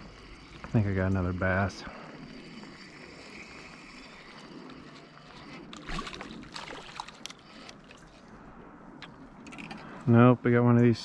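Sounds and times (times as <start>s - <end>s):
background hiss: 0.0s - 6.1s
fish splashing at surface: 5.8s - 7.4s.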